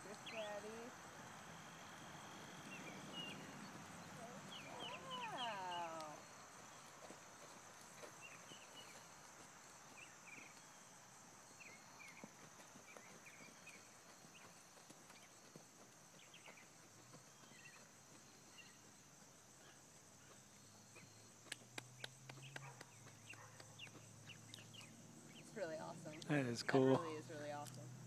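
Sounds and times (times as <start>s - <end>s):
distant horse trotting on sand: 0.0s - 26.1s
high insect drone: 0.0s - 28.0s
bird chirps: 1.8s - 6.9s, 22.0s - 26.3s.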